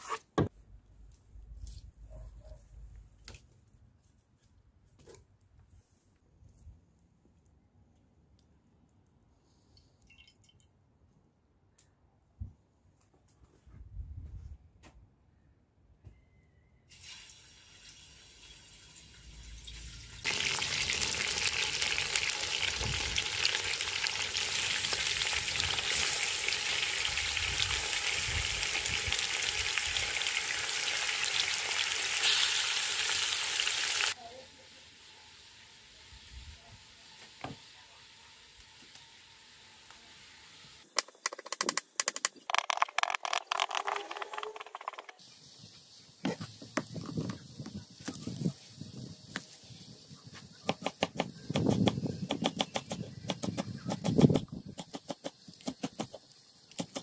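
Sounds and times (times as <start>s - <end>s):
meat sizzling in cauldron: 16.9s - 37.2s.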